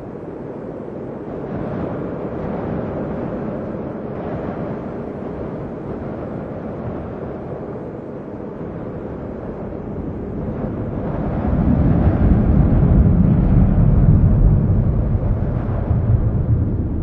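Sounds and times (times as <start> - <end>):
low rumbling noise: 9.2 - 17.0.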